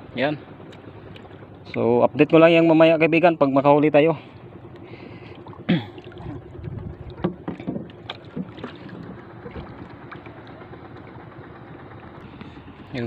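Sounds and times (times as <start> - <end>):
steady low hum: 0.0 - 13.0
water sloshing against hull: 4.2 - 13.0
wood knocking: 7.2 - 8.7.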